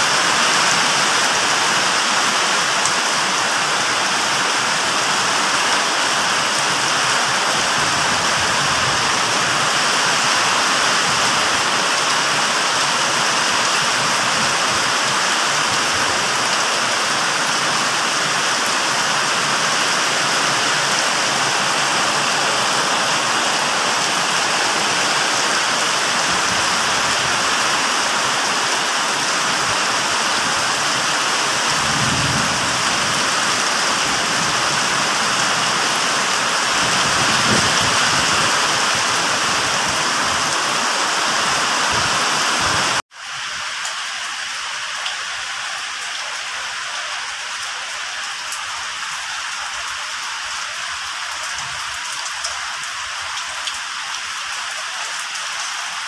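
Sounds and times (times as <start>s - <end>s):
heavy rain on concrete: 0.0s - 56.0s.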